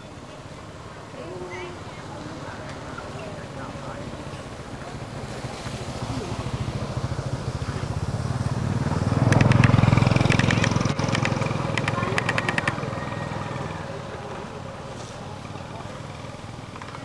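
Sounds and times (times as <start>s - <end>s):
small engine passing by: 0.0s - 17.0s
quick clicks: 9.3s - 12.8s.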